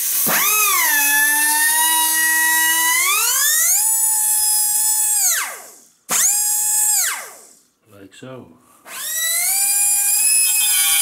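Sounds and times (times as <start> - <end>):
air die grinder whining: 8.9 - 11.0.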